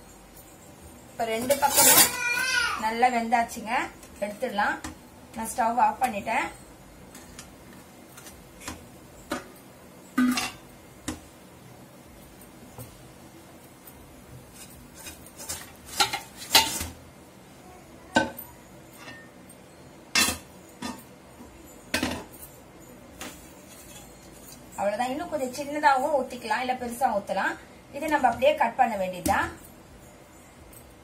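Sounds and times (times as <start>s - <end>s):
spatula scraping a pan: 1.4s - 2.2s, 14.4s - 16.9s, 23.6s - 24.7s
pans and lid clattering: 8.2s - 10.6s, 14.6s - 17.0s, 20.1s - 21.1s.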